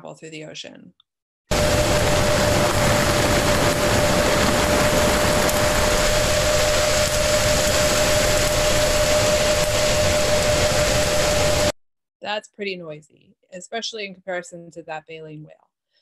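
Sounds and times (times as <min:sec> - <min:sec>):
underwater ship noise: 0:01.5 - 0:11.7.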